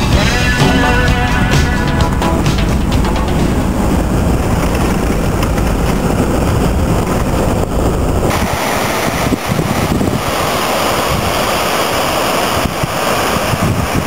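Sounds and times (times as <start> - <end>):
vehicle cab road rumble: 0.0 - 14.0
waterfall rushing: 0.0 - 14.0.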